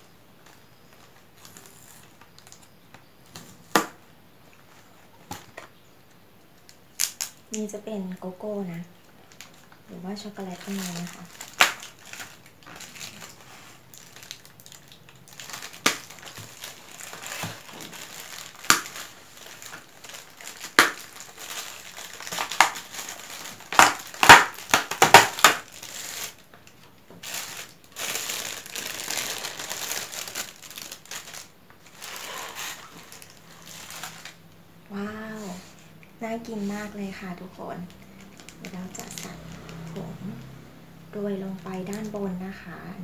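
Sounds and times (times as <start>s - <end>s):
plastic rustling softly: 0.0s - 42.9s
plastic food tray crackling: 9.3s - 34.4s.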